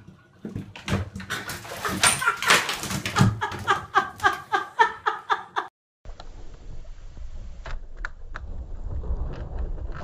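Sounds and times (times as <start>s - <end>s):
cat scrambling and splashing: 0.8s - 3.9s.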